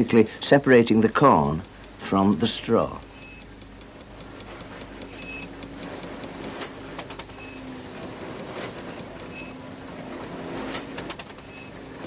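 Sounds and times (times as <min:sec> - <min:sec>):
light irregular ticking: 0:00.0 - 0:12.0
threshing machine humming: 0:01.0 - 0:12.0.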